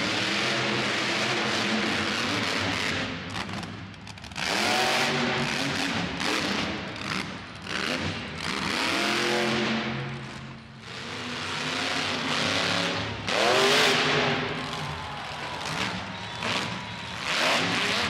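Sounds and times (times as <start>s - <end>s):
truck engine revving hard: 4.4s - 14.8s, 15.6s - 18.0s.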